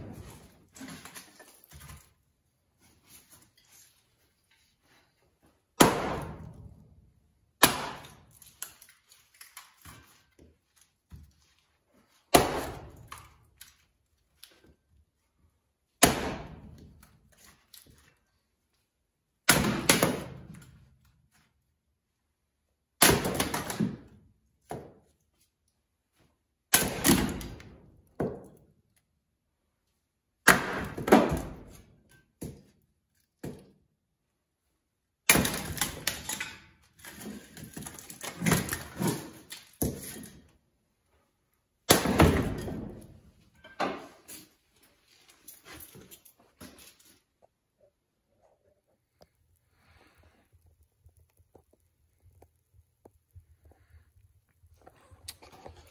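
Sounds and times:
axe chopping firewood: 5.8 - 6.7, 7.6 - 8.8, 12.3 - 13.3, 16.0 - 17.0, 19.4 - 20.6, 23.0 - 25.0, 26.7 - 28.6, 30.5 - 31.8, 35.3 - 40.4, 41.9 - 43.0
split wood pieces falling: 7.6 - 11.2, 35.3 - 40.5.

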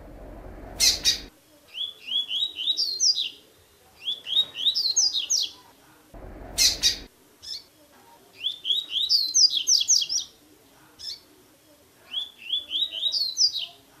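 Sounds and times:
bird singing whistled notes: 0.8 - 3.4, 8.4 - 10.3, 12.1 - 13.7.

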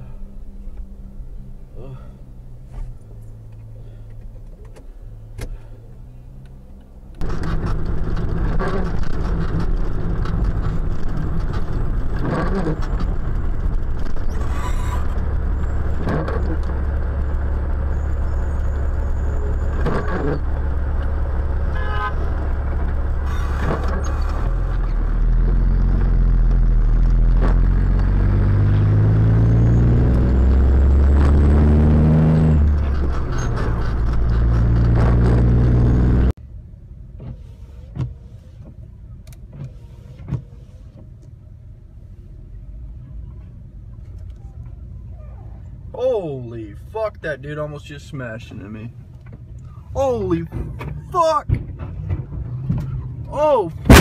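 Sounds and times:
low hum: 0.0 - 37.0
truck engine drone: 0.0 - 38.6, 48.2 - 54.0
road noise: 0.0 - 54.0.

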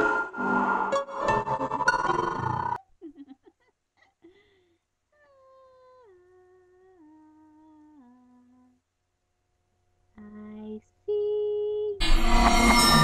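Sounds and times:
ringing horror sound effect hit: 12.0 - 13.0.

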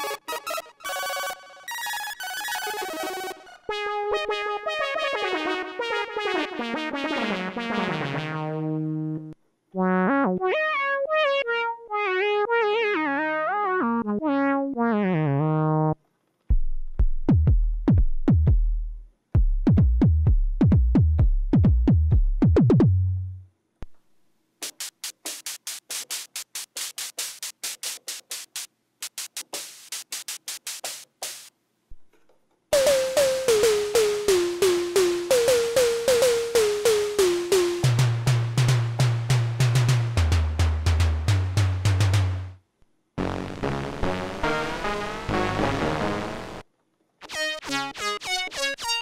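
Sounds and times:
synth kick drum hits: 16.5 - 23.1
noisy synth snare notes: 16.5 - 24.0, 24.6 - 31.5, 32.8 - 42.6
synth hi-hat ticks: 24.6 - 31.5
synthesizer falling run of notes: 32.8 - 42.2, 43.2 - 46.6.

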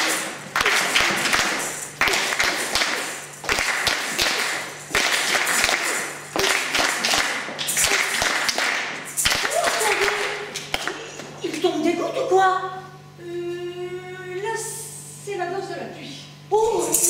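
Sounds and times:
rhythmic hand-clapping: 0.0 - 11.3.

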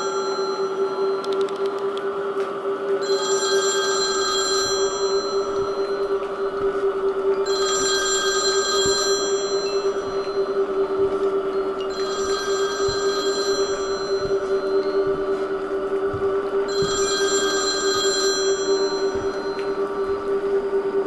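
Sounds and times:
steady hum: 0.0 - 21.0
telephone bell ringing: 3.0 - 6.2, 7.4 - 10.6, 11.9 - 15.2, 16.7 - 19.7.

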